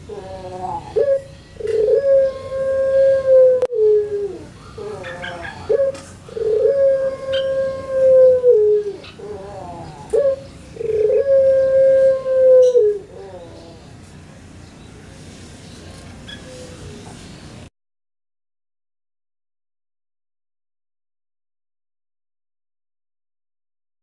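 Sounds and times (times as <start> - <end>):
dove cooing: 0.0 - 14.0.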